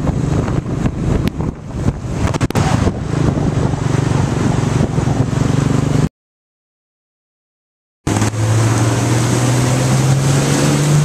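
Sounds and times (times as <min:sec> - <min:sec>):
wind buffeting microphone: 0:00.0 - 0:06.1.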